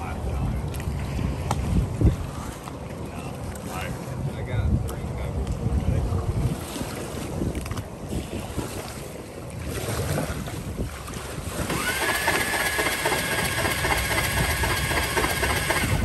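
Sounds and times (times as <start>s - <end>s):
lapping shallow water: 0.0s - 16.0s
wind buffeting microphone: 0.0s - 16.0s
high whine of small motor: 11.6s - 16.0s.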